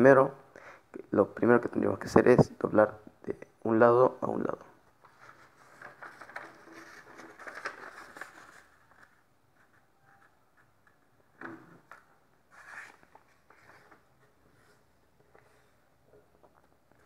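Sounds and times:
paper rustling and scraping: 0:05.0 - 0:11.0, 0:11.9 - 0:15.8.

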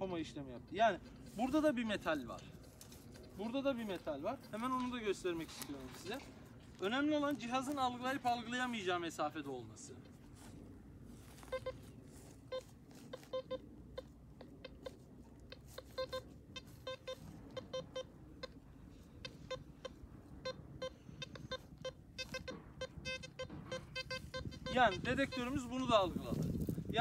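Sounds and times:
metal detector beeping: 0:00.0 - 0:26.7.

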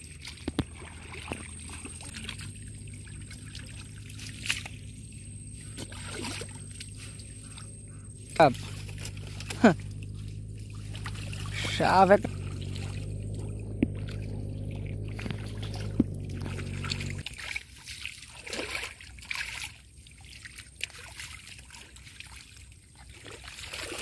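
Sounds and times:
low hum: 0:00.0 - 0:17.2
river water trickling: 0:00.0 - 0:24.0
small splashes: 0:00.0 - 0:24.0.

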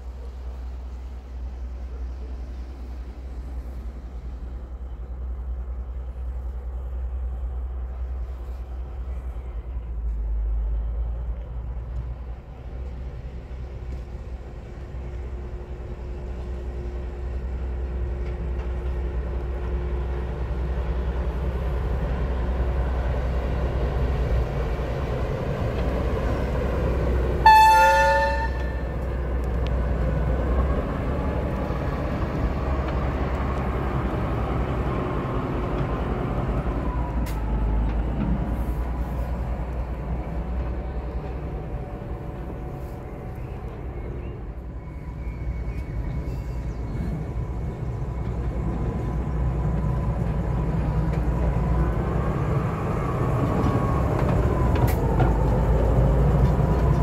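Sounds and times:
diesel locomotive engine passing: 0:00.0 - 0:57.0
locomotive horn blast: 0:27.4 - 0:29.1.

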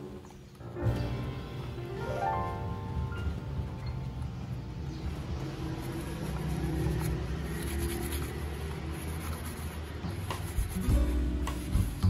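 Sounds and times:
handling and rubbing noises: 0:05.4 - 0:12.0.

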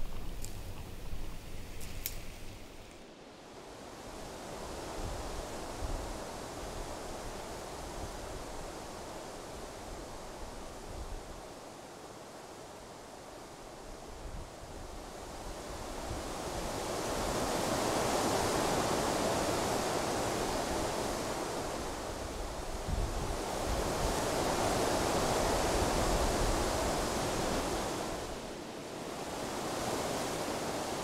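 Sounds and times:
wind buffeting microphone: 0:00.0 - 0:02.8
strong gusty wind: 0:14.0 - 0:31.0.

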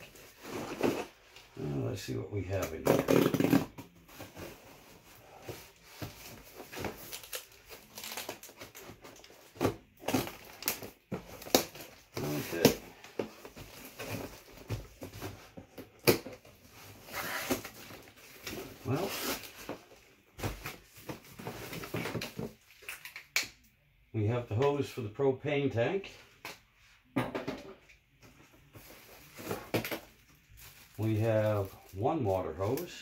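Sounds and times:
cardboard rustling and crinkling: 0:00.0 - 0:22.9, 0:28.3 - 0:33.0.

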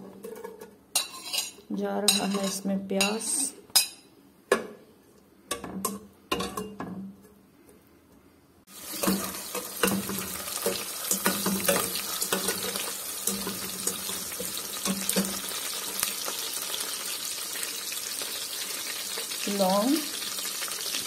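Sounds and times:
metal spatula scraping a pot: 0:00.2 - 0:02.6, 0:08.8 - 0:16.0
onions sizzling in hot oil: 0:08.7 - 0:21.0.

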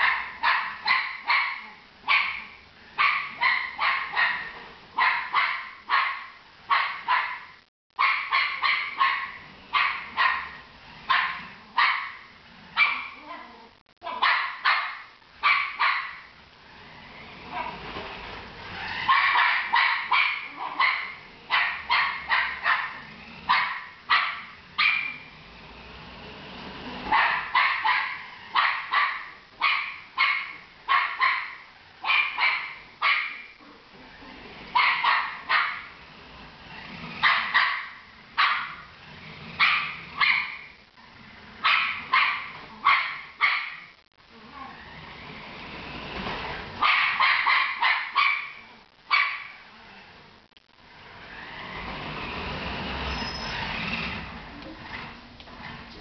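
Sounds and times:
dog barking: 0:00.0 - 0:13.4, 0:14.0 - 0:16.3, 0:19.0 - 0:25.3, 0:27.1 - 0:33.6, 0:34.7 - 0:36.0, 0:37.2 - 0:38.9, 0:39.6 - 0:40.7, 0:41.6 - 0:44.0, 0:46.8 - 0:49.6.

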